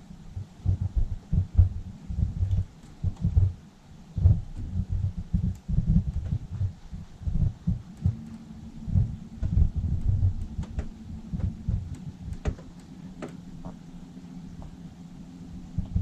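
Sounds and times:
wind buffeting microphone: 4.2s - 12.7s
electric motor humming: 4.4s - 16.0s.

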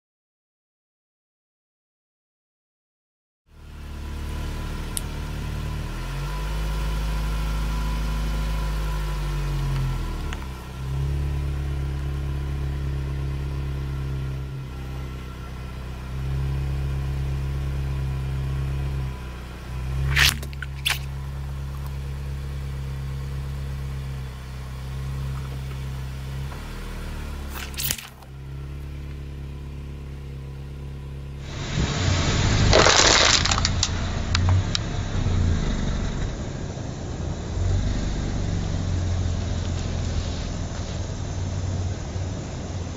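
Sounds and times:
car engine at low revs: 3.5s - 42.9s
rough rushing noise: 19.9s - 21.3s, 31.4s - 38.6s
bag of water beads cracking: 20.0s - 21.1s, 27.5s - 28.3s, 32.6s - 34.0s.

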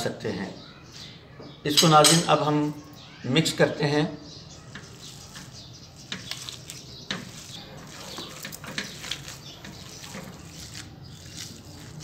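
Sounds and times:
wet squelching of kneaded meat: 4.8s - 12.0s.

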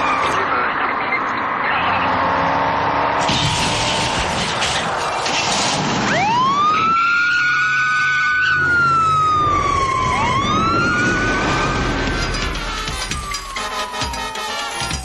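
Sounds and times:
cars driving: 0.0s - 15.0s
police siren wailing: 6.0s - 15.0s.

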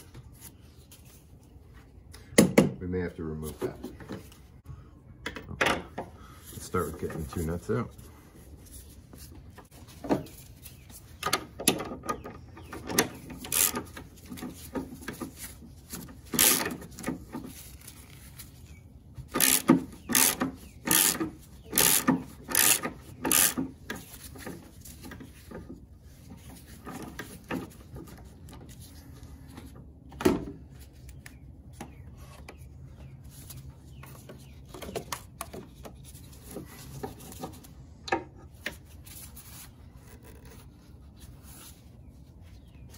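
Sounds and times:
hand ratchet clicking: 13.4s - 13.8s, 16.4s - 16.8s, 19.3s - 23.6s.

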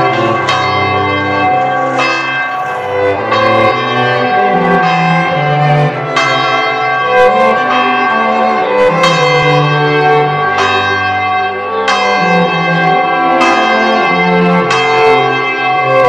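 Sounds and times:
church bell ringing: 0.0s - 16.0s.

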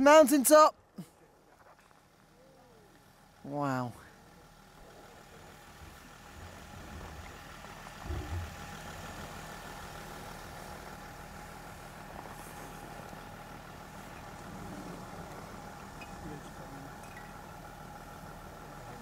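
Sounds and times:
vehicle engine idling: 0.0s - 19.0s
short low bumps: 5.8s - 9.3s.

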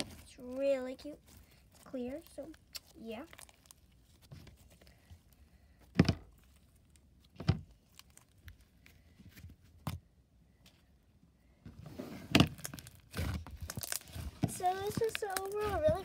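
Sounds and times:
slime squishing and crackling: 0.0s - 8.8s, 12.3s - 16.0s
slime popping: 12.6s - 15.7s.

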